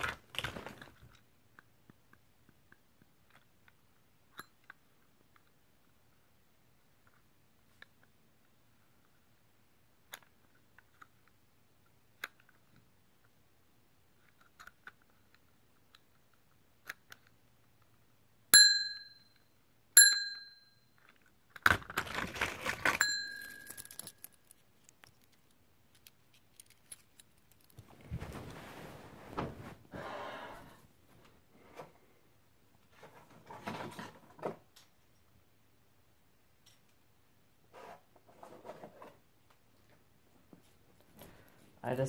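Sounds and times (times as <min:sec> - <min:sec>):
small metal object dinging: 0:18.6 - 0:21.0, 0:23.0 - 0:24.2
metal rattling jangle: 0:23.0 - 0:24.5.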